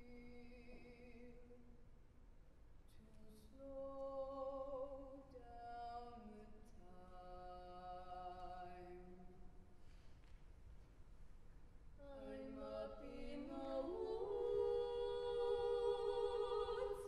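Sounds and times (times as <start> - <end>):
vocal group singing a cappella: 12.0 - 17.0.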